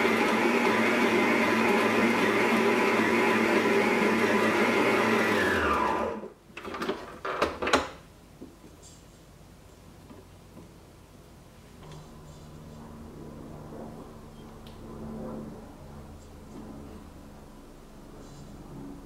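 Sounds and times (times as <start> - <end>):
stand mixer motor running: 0.0 - 6.3.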